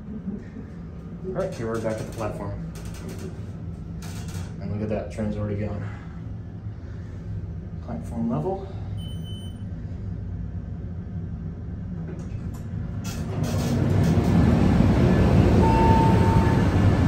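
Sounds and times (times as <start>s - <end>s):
train rumble: 0.0s - 8.8s, 10.5s - 17.0s
low hum: 0.0s - 17.0s
elevator doors clicking open: 1.4s - 3.4s, 4.0s - 4.6s, 12.2s - 17.0s
steady tone: 14.7s - 17.0s.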